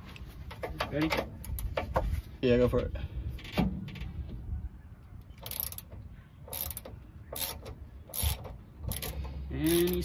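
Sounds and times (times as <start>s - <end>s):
socket ratchet clicking: 6.5s - 10.0s.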